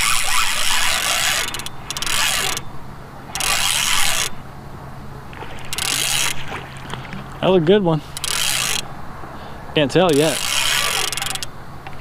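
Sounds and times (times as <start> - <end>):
fishing reel cranking: 0.0 - 2.7, 3.3 - 4.4, 5.6 - 6.4, 8.1 - 8.9, 10.1 - 11.5
steady low hum: 0.0 - 12.0.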